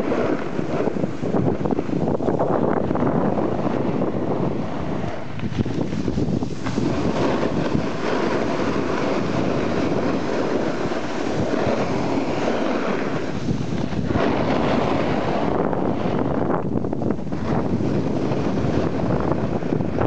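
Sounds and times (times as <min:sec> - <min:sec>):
skis scraping on snow: 0:00.0 - 0:20.0
wind rushing over microphone: 0:00.0 - 0:20.0.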